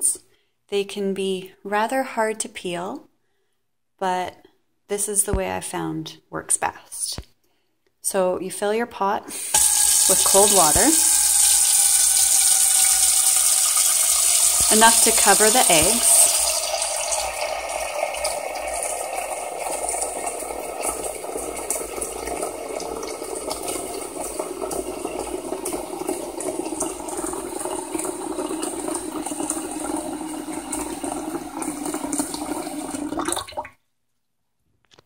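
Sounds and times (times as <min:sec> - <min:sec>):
tap water pouring into saucepan: 0:09.3 - 0:33.8.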